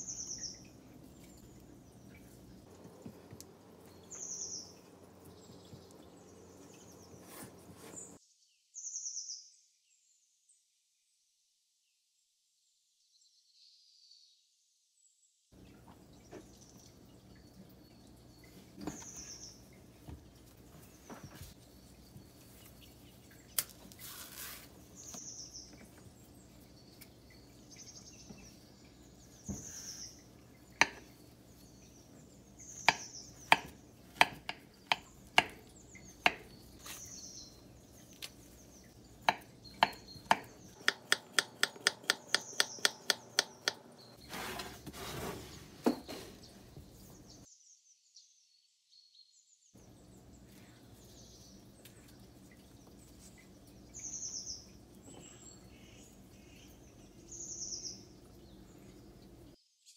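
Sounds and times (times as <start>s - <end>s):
small birds chirping: 0.0s - 9.6s, 15.6s - 44.5s, 45.6s - 59.9s
knife tapping on cutting board: 30.8s - 31.0s, 32.9s - 35.6s, 36.3s - 36.5s, 39.3s - 43.8s.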